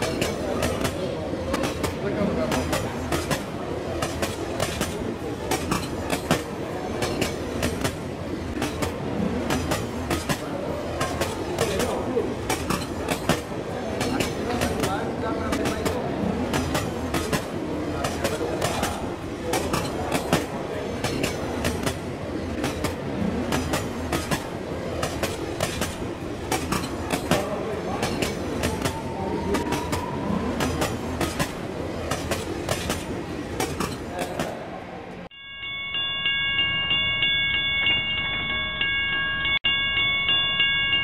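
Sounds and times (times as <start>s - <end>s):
held chord of ringing tones: 35.3s - 41.0s.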